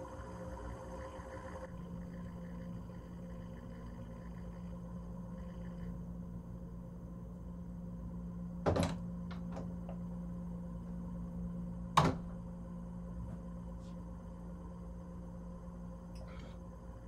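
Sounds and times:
steady low hum: 0.0 - 17.0
door latch clunk: 8.6 - 9.7, 12.0 - 12.3
door shutting bang: 8.6 - 9.8, 12.0 - 12.4.

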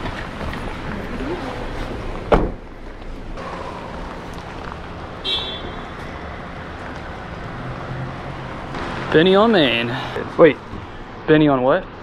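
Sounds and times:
car hum: 0.0 - 11.2
car door thump: 2.3 - 2.6.

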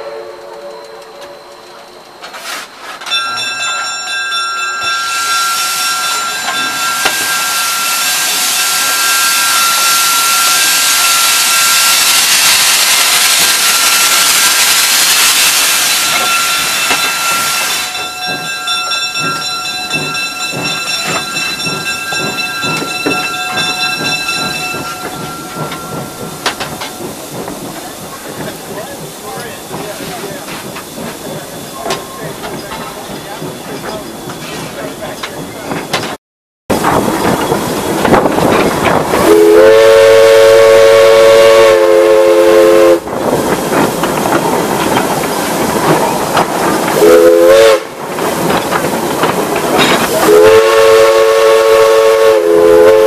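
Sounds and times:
high whistling tone: 4.8 - 12.4
steam hissing: 5.0 - 35.9, 36.8 - 53.0.

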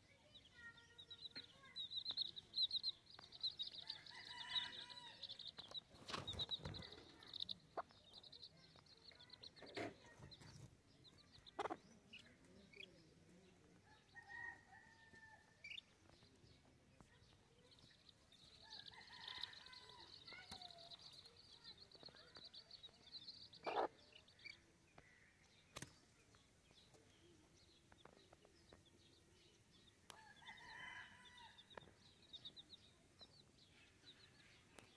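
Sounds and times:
chicks peeping: 0.2 - 14.1, 15.6 - 25.0
hen clucking: 11.4 - 12.2, 23.6 - 24.2.

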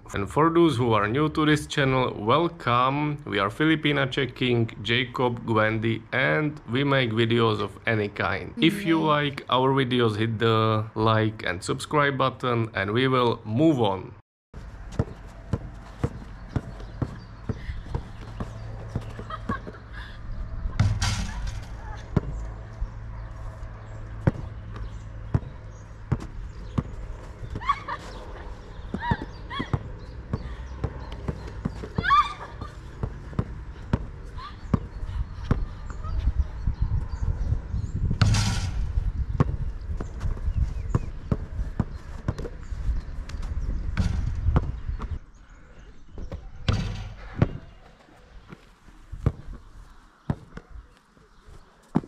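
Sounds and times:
short vocal cries: 8.6 - 9.1
basketball bouncing: 14.8 - 19.8, 20.8 - 22.5, 24.1 - 27.7, 28.9 - 32.2, 33.0 - 35.7, 44.0 - 45.2, 46.2 - 47.7, 50.3 - 50.7.

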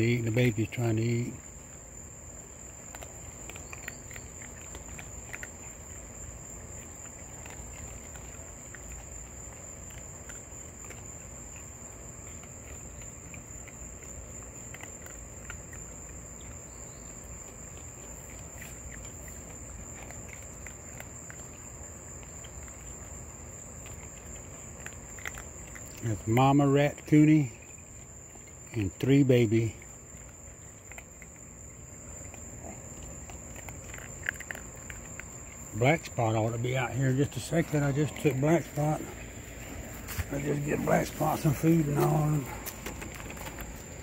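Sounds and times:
animals eating dry food: 0.0 - 44.0
crickets trilling: 0.0 - 44.0.

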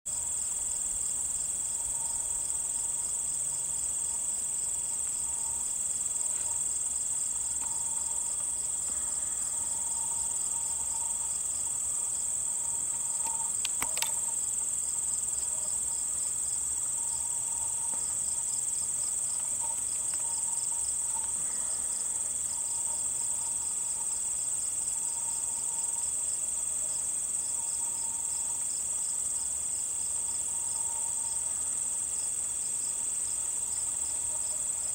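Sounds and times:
insects trilling and chirping: 0.1 - 34.9
sharp click: 13.2 - 14.2.

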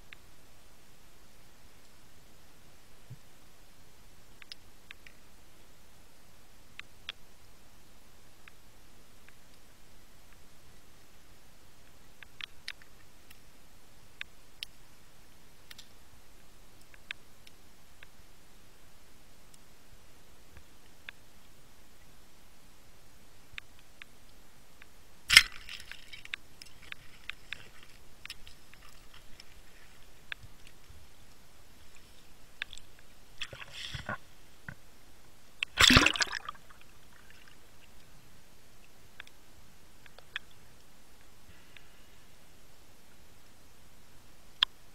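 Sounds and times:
faint clicks: 0.0 - 0.3, 4.3 - 5.3, 6.7 - 7.3, 11.8 - 13.5, 14.1 - 14.9, 15.6 - 18.2, 20.5 - 22.1, 23.5 - 34.9, 38.8 - 42.2, 44.5 - 44.8
water splashing and gurgling: 35.6 - 37.6.

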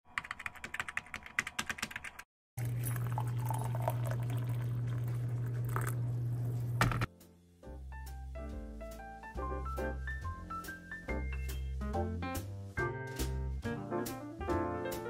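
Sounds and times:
water pouring into a mug: 2.6 - 6.1.

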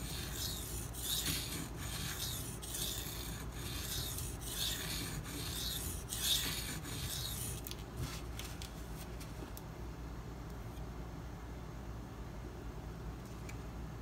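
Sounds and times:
knife scraping on whetstone: 0.0 - 7.8.

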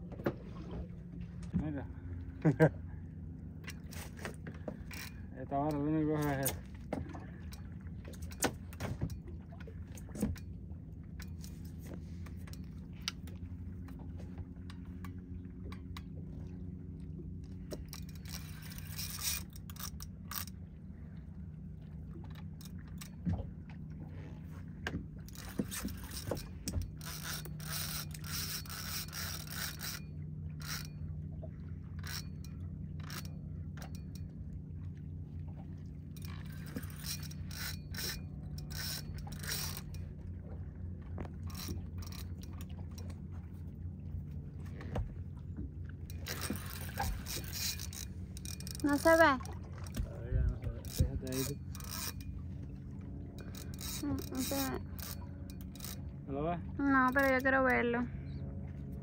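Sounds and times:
steady low hum: 0.0 - 59.0
fishing reel clicking and rattling: 3.6 - 6.7, 17.7 - 20.6, 25.2 - 31.0, 31.9 - 34.3, 36.2 - 40.1, 41.4 - 43.2, 46.0 - 52.4, 53.3 - 56.2, 56.8 - 57.9.

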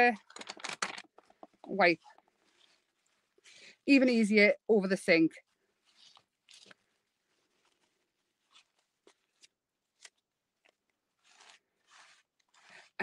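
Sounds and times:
paper towel rustling: 0.0 - 3.6, 5.4 - 10.2, 11.1 - 13.0.

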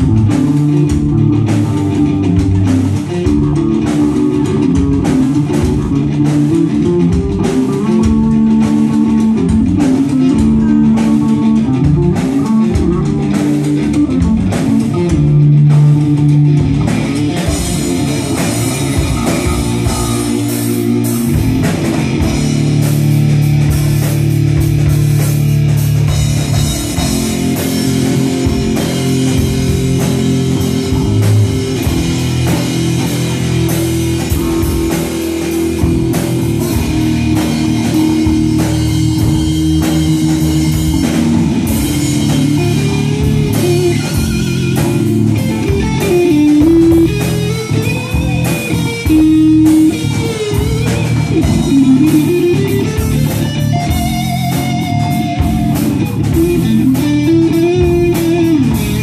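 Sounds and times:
bass guitar: 0.0 - 59.0
drum kit: 0.0 - 59.0
electric guitar: 0.0 - 59.0.

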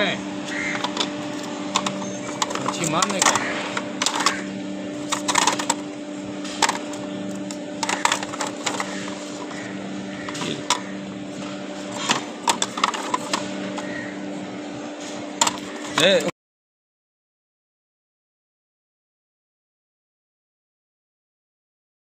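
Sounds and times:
plastic spools clicking together: 1.7 - 4.4, 6.6 - 9.6.

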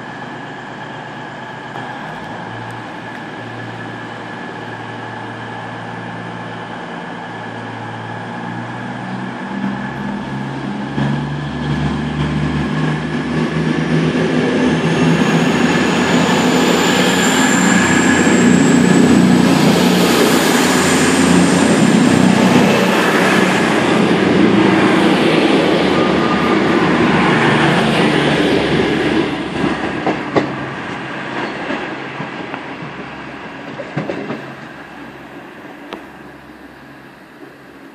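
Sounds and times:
diesel train engines: 0.0 - 37.9
thin rising whine: 9.6 - 29.4.

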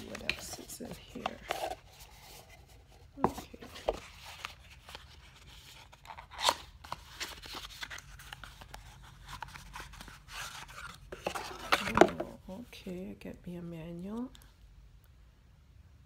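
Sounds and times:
cardboard packaging scraping and rustling: 0.0 - 12.4.

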